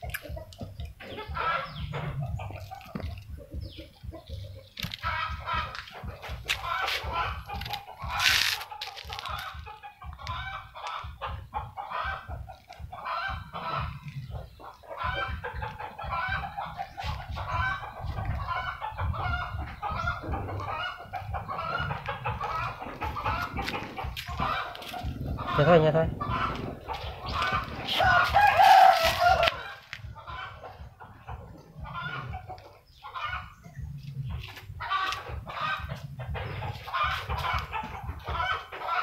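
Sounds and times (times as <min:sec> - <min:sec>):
chickens clucking: 0:00.0 - 0:39.0.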